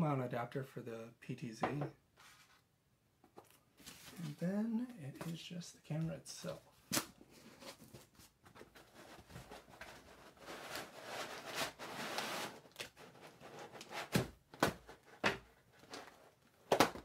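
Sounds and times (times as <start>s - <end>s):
cardboard scraping and sliding: 2.2s - 2.6s, 7.4s - 15.2s.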